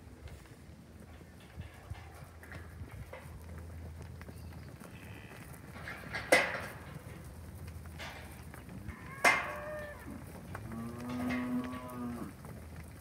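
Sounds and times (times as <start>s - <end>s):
cows mooing: 8.7s - 12.4s.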